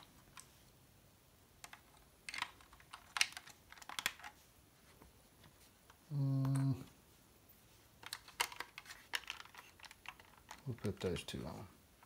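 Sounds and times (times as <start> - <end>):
plastic parts clicking: 1.6 - 4.4, 8.0 - 11.4.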